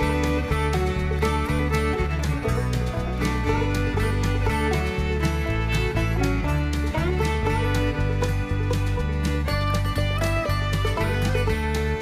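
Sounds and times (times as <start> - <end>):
instrumental music with steady rhythm: 0.0 - 12.0.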